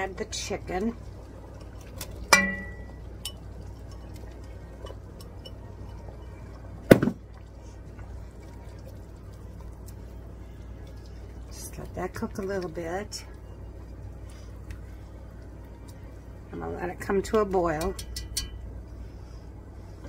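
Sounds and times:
soft stirring: 0.0 - 20.0
glass bowl clinking on pot: 2.3 - 3.4.

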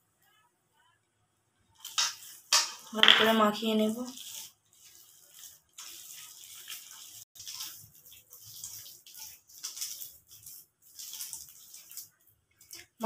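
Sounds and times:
hand squelching wet batter: 3.7 - 13.0.

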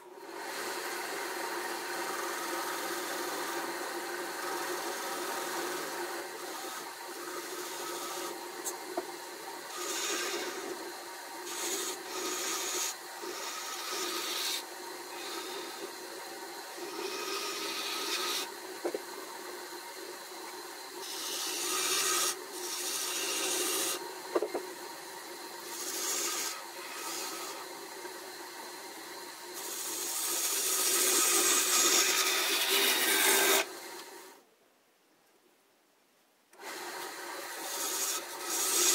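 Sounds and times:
lathe humming: 0.0 - 34.4, 36.6 - 38.9
tool cutting wood on lathe: 0.0 - 34.4, 36.6 - 38.9.

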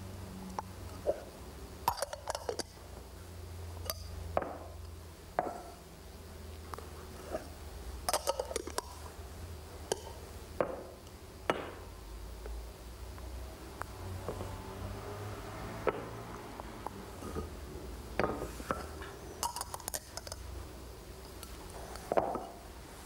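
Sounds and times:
metal cups clinking and knocking: 1.9 - 2.7, 8.1 - 9.0, 18.2 - 20.4.

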